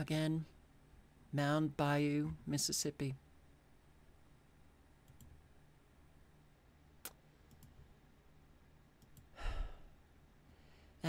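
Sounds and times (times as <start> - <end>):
computer mouse clicks: 5.0 - 5.4, 7.0 - 7.8, 9.0 - 9.3
person sighing: 9.3 - 10.0.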